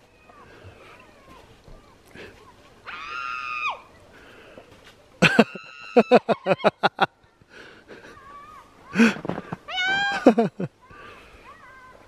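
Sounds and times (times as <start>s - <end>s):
person laughing: 5.2s - 7.1s, 10.0s - 10.7s.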